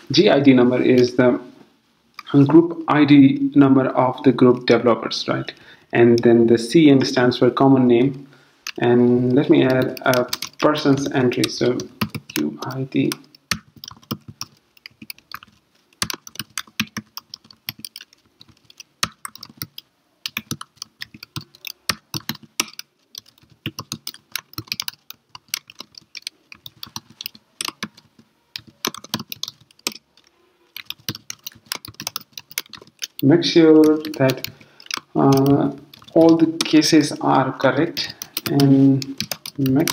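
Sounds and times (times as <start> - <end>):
typing on a computer keyboard: 9.6 - 36.9, 37.8 - 39.9.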